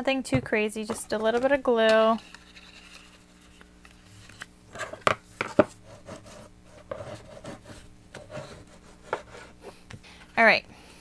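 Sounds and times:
paper rubbing and scraping: 0:02.1 - 0:05.0, 0:05.7 - 0:09.6.

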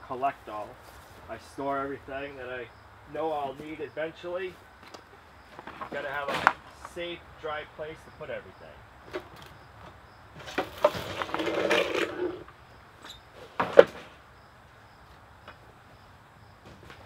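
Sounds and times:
gear scraping and rattling: 0:10.4 - 0:13.2.

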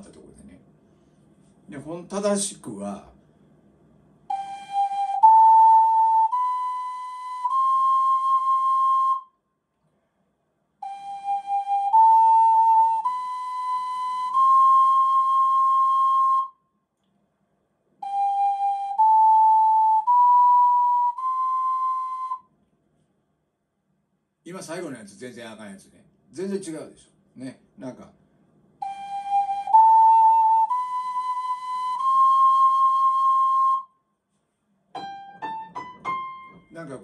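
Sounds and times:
ocarina playing rising scale: 0:04.3 - 0:09.4, 0:10.8 - 0:16.6, 0:18.0 - 0:22.5, 0:28.8 - 0:34.0.

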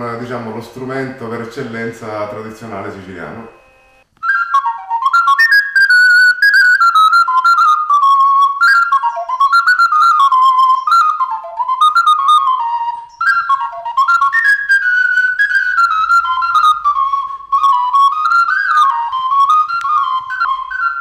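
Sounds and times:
small flute melody: 0:02.7 - 0:21.0.

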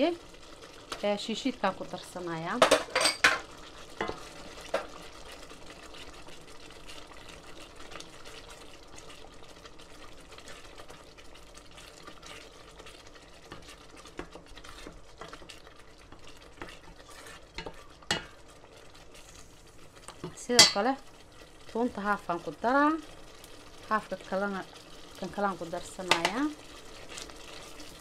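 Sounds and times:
soft sizzle in pot: 0:00.0 - 0:28.0
wooden spoon scraping and tapping pot: 0:02.5 - 0:05.0, 0:11.9 - 0:18.4, 0:26.0 - 0:27.3.

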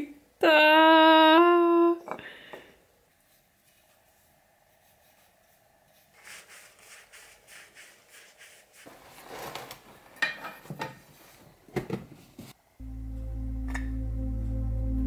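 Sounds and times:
crumpled paper rustling in metal tin: 0:08.8 - 0:10.2.

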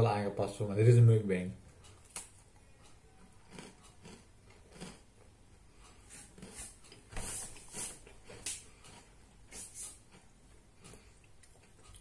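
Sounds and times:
cookie crunching while chewed: 0:03.3 - 0:05.3, 0:06.1 - 0:07.0, 0:07.6 - 0:12.0.

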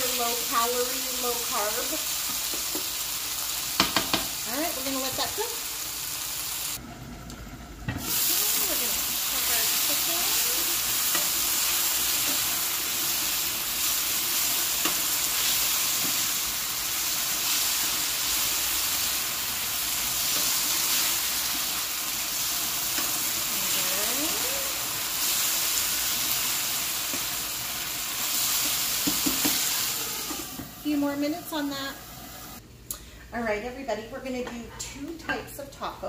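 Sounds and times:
chicken sizzling in oil: 0:00.0 - 0:32.6
spatula tapping and scraping pan: 0:03.8 - 0:04.4, 0:28.6 - 0:29.6.

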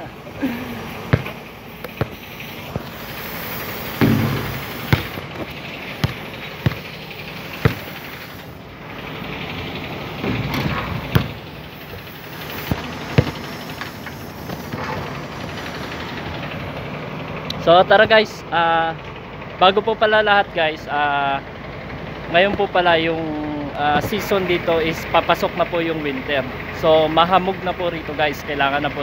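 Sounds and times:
low rumbles: 0:00.0 - 0:21.1
outdoor background noise: 0:00.0 - 0:29.0
basketball bouncing and hitting rim: 0:01.0 - 0:15.9, 0:24.0 - 0:24.4.

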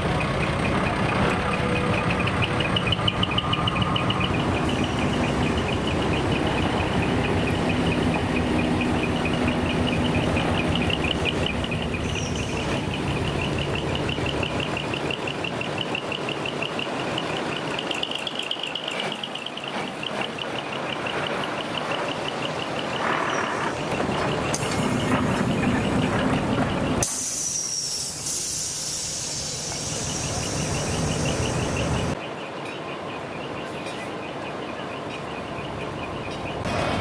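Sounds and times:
diesel truck engine running: 0:00.0 - 0:27.1, 0:29.2 - 0:32.2
compressed air hissing: 0:27.0 - 0:31.0.

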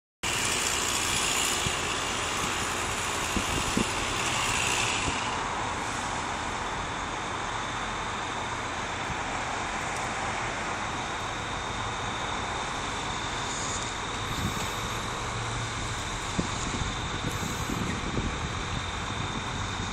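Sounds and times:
crane truck engine running: 0:00.2 - 0:19.9.

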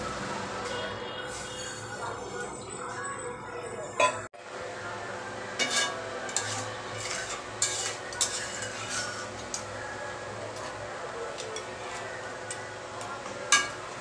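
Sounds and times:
spatula scraping metal pan: 0:01.2 - 0:02.3, 0:05.6 - 0:09.6.

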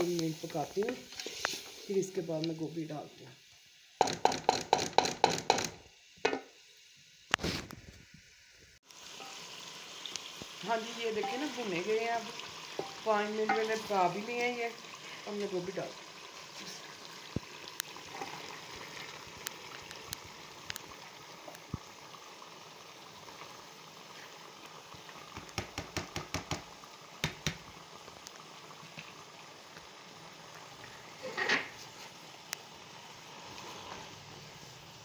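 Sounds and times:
curry bubbling in pot: 0:08.8 - 0:35.0.

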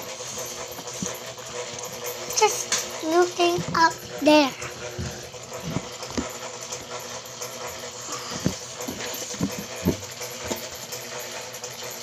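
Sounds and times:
electric fan humming: 0:00.0 - 0:12.0
short dull thumps: 0:08.3 - 0:10.6.

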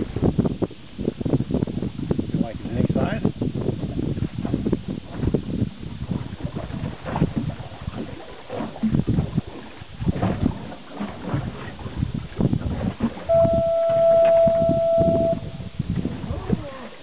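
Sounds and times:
gusty wind on microphone: 0:00.0 - 0:17.0
steady high beep: 0:13.3 - 0:15.5.

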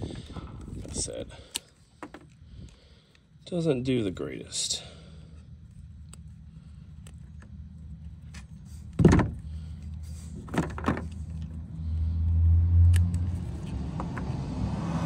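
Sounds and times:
wire cutters snipping wire: 0:12.8 - 0:13.8.

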